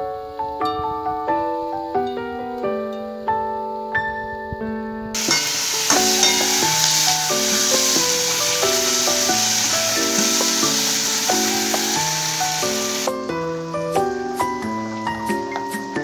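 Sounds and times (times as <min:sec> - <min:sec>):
keyboard music: 0:05.2 - 0:16.0
vegetables sizzling in hot oil: 0:05.2 - 0:16.0.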